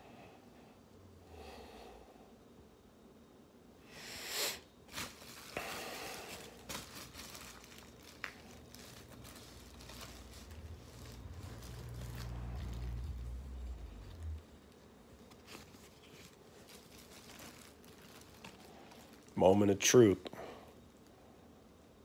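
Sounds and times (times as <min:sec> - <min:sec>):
plastic bag crinkling: 0:04.8 - 0:21.2.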